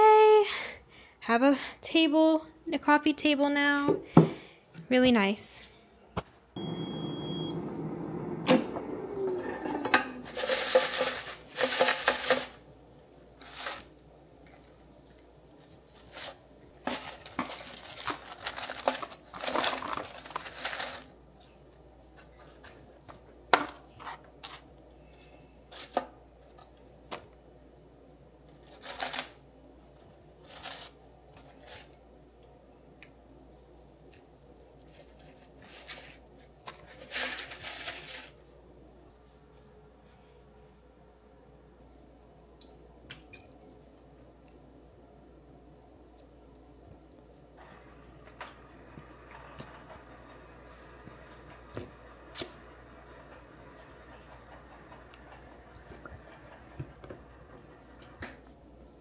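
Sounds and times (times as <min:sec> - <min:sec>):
air fryer fan hum: 0:06.6 - 0:22.2, 0:47.5 - 0:59.0.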